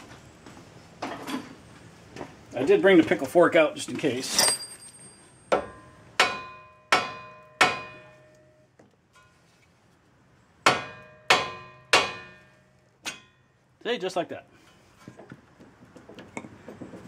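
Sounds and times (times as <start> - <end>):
hammer striking metal: 4.4 - 8.5, 10.7 - 13.4.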